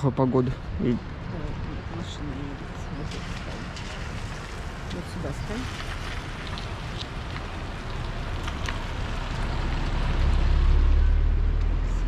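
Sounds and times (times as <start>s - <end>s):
tyres hissing on wet road: 3.1s - 10.8s.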